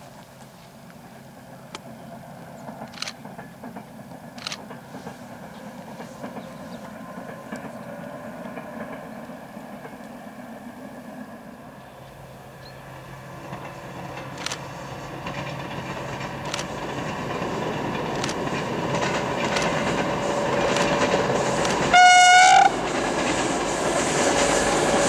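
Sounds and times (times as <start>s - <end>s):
distant locomotive engine drone: 0.0s - 25.0s
train coaches rumbling on track: 0.0s - 25.0s
sharp clicks: 14.3s - 14.6s, 16.4s - 16.8s, 18.1s - 18.4s, 19.5s - 19.9s, 21.6s - 21.9s.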